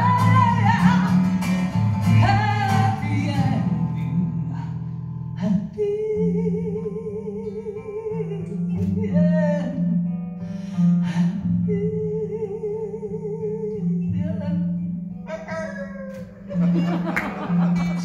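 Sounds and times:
acoustic guitar strumming: 0:00.0 - 0:05.4, 0:14.0 - 0:18.0.

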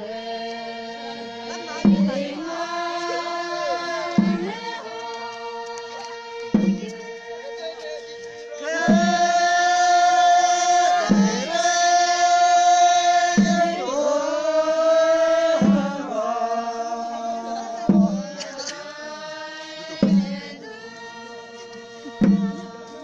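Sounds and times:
long held sung notes: 0:00.0 - 0:23.0
drum strikes: 0:01.6 - 0:08.0, 0:08.6 - 0:16.8, 0:17.6 - 0:19.0, 0:19.7 - 0:20.7, 0:21.7 - 0:23.0.

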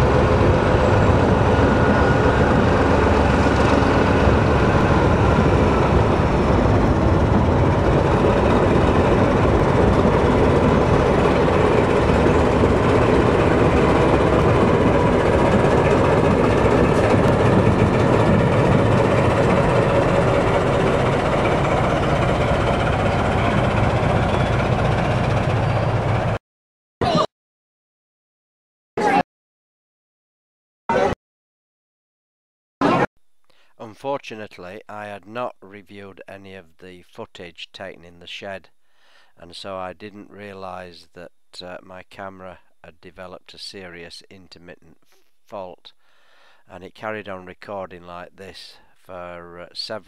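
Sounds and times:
locomotive engine running: 0:00.0 - 0:26.4
train rumbling over bridge: 0:00.0 - 0:26.4.

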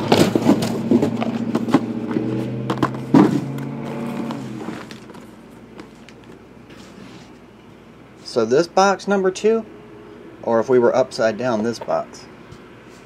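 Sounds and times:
boxes knocking on a table: 0:00.0 - 0:03.6
steady low hum: 0:00.0 - 0:13.0.

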